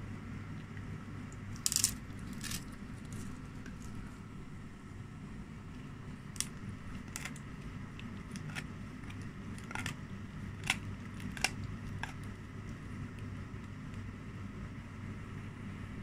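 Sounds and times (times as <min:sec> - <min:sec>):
steady low hum: 0:00.0 - 0:16.0
dog chewing with crunches: 0:06.3 - 0:14.0.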